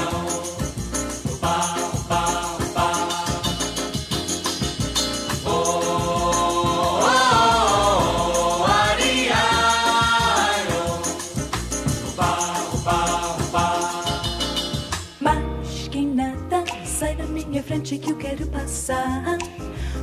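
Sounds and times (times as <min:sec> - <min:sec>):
group vocals singing held notes: 0:00.0 - 0:04.0, 0:05.4 - 0:14.8
music with quick beat: 0:00.0 - 0:15.2.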